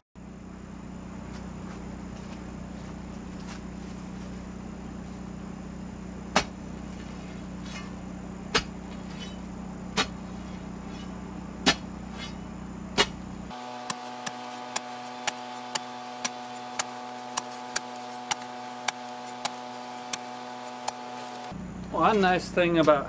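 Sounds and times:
steady low hum: 0.2s - 23.0s
steel bar thunking into ground: 6.3s - 12.4s, 13.0s - 13.2s.

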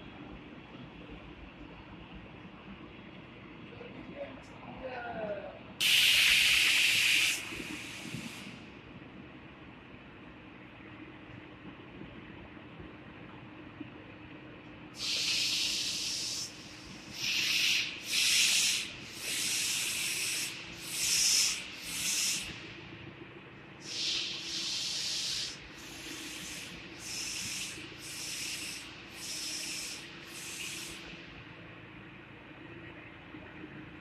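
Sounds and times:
short bursts of hissing: 5.8s - 8.6s, 15.0s - 22.7s, 23.8s - 31.2s.

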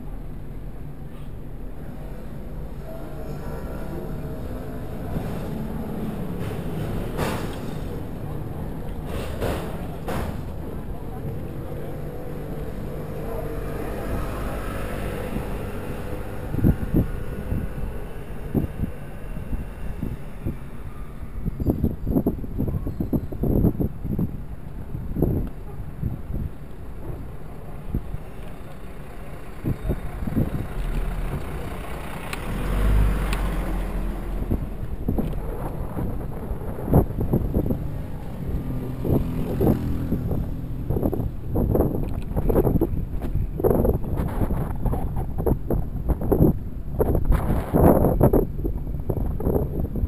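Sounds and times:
road rumble while riding: 0.0s - 50.0s
wind: 0.0s - 50.0s
fire engine running: 1.8s - 21.7s.

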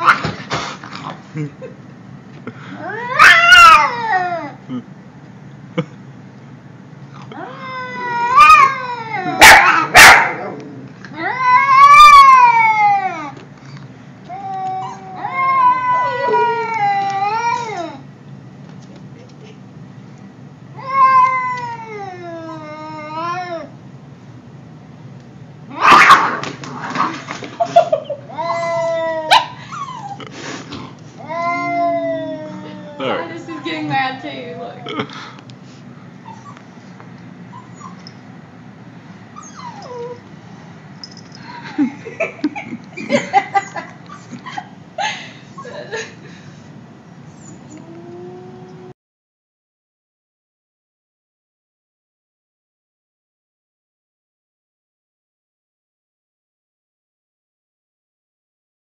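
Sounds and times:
animal whining: 2.7s - 4.9s, 7.2s - 13.4s, 14.3s - 18.0s, 20.8s - 23.8s, 25.7s - 27.2s, 27.8s - 34.1s, 36.2s - 36.6s, 37.4s - 38.3s, 39.4s - 40.3s, 47.2s - 49.0s
cat yowling: 2.8s - 4.6s, 7.3s - 13.4s, 14.4s - 18.0s, 20.8s - 23.7s, 25.7s - 26.4s, 28.3s - 30.2s, 31.2s - 33.3s
cat hissing: 30.2s - 30.9s.

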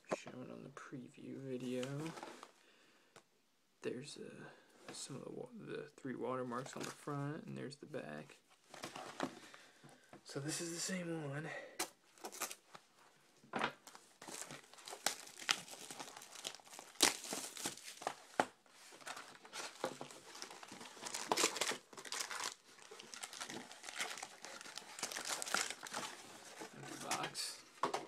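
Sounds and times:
plastic wrapped packs rustling: 12.1s - 13.0s, 13.8s - 28.0s
wrapping tearing: 13.8s - 18.4s, 19.0s - 27.2s
cardboard box crinkling: 13.8s - 27.4s.

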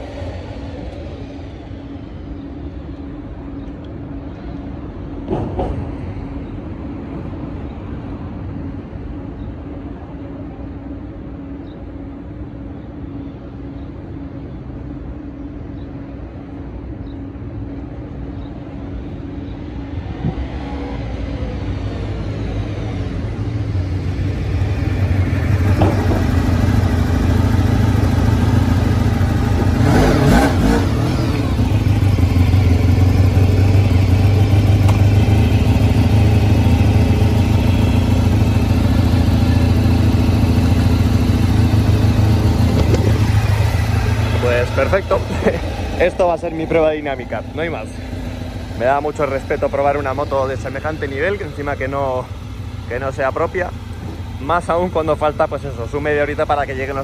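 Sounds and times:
motorcycle engine approaching: 20.0s - 57.0s
motorcycle engine idling: 22.6s - 57.0s.

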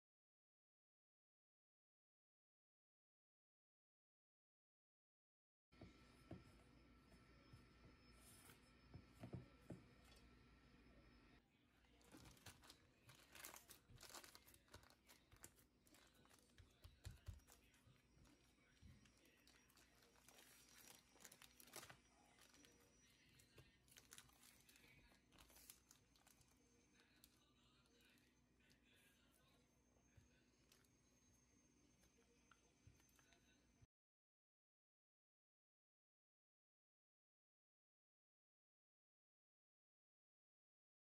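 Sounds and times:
hands kneading dough in metal bowl: 12.0s - 22.6s
plastic bag crinkling: 12.0s - 27.4s.

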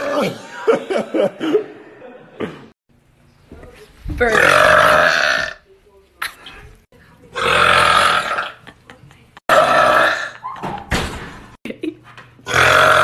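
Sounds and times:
man burping loudly: 4.4s - 5.6s, 7.4s - 8.6s, 9.5s - 10.4s, 12.4s - 13.0s.

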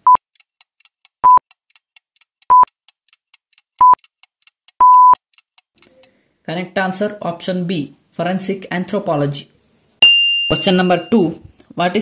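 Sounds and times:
high electronic beeps: 4.8s - 5.2s.

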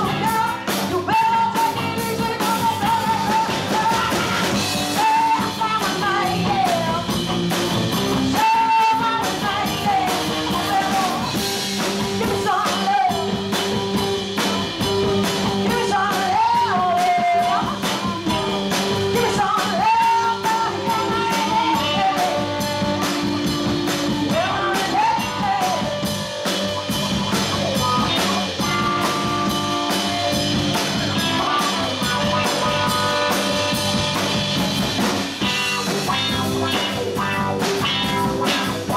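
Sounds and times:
woman singing: 0.0s - 7.2s, 8.3s - 11.4s, 12.0s - 13.7s, 15.5s - 26.2s
rock band playing: 0.0s - 38.9s.

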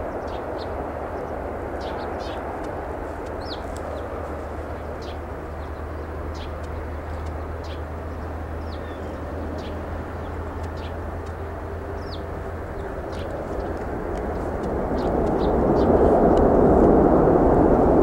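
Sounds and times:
distant jet engines rumbling: 0.0s - 18.0s.

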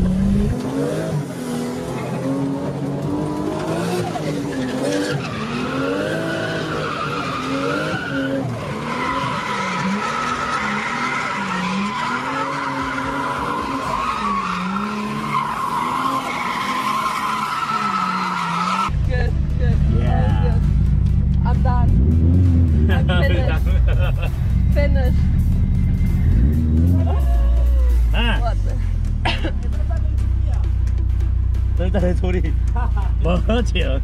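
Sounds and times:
car engine revving: 0.0s - 34.0s
tyres squealing: 4.2s - 18.9s.

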